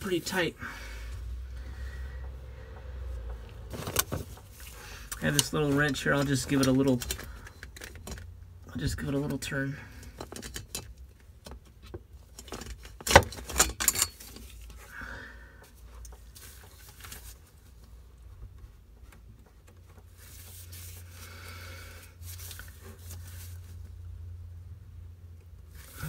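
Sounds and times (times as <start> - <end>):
rubbing and handling of filter: 15.7 - 21.4, 22.0 - 24.0.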